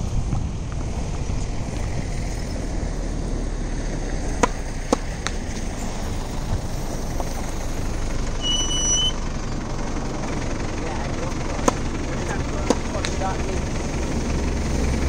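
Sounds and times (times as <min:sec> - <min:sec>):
low background rumble: 0:00.0 - 0:15.0
tennis ball strikes: 0:04.3 - 0:05.7, 0:11.4 - 0:13.2.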